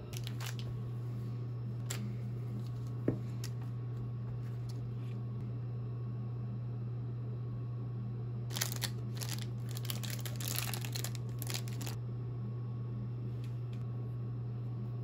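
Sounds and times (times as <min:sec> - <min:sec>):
steady low hum: 0:00.0 - 0:15.0
fabric rustling and crinkling: 0:08.5 - 0:12.0.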